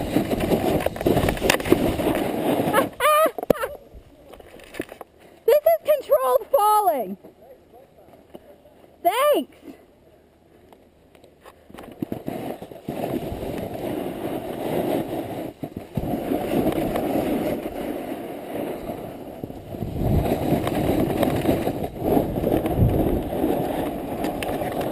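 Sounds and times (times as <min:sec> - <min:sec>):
snowboard scraping over snow: 0:00.0 - 0:03.2, 0:12.0 - 0:24.9.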